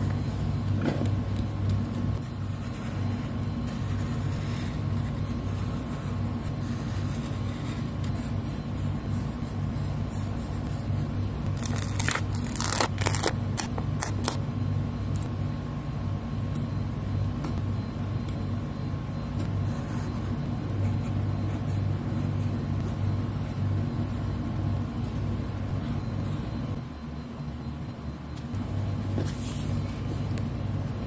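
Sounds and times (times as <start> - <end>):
steady low hum: 0.0 - 31.0
paper stickers crackling: 11.5 - 14.4.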